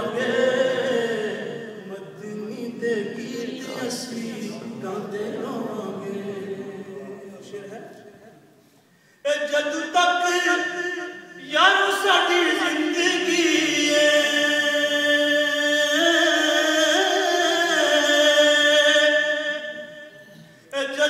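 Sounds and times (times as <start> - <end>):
man singing unaccompanied: 9.2 - 20.0, 20.7 - 21.0.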